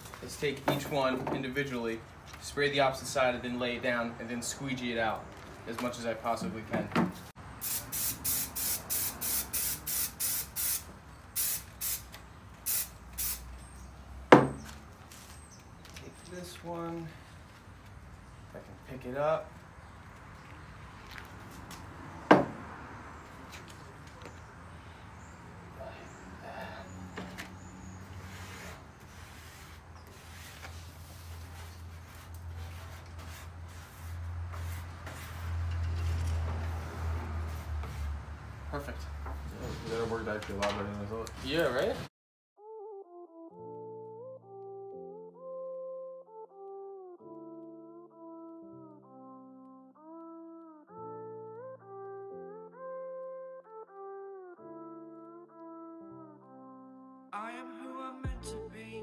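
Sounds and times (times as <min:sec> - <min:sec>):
aerosol spray can hissing: 0:07.6 - 0:12.1, 0:12.7 - 0:13.5
hands rubbing paper: 0:28.2 - 0:36.2.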